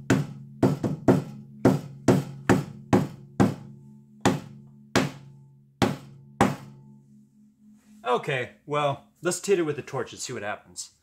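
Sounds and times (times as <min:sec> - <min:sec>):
hammer striking canvas panel: 0:00.0 - 0:06.8.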